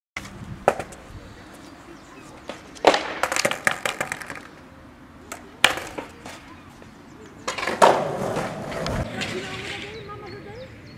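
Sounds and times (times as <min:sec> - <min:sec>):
skateboard clattering on stone: 0:00.6 - 0:01.0, 0:02.4 - 0:04.6, 0:05.3 - 0:06.5, 0:07.4 - 0:10.1.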